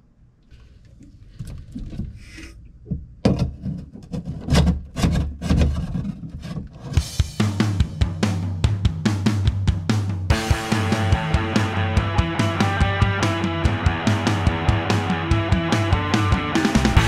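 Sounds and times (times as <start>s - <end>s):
rubbing and rustling: 3.4s - 7.2s.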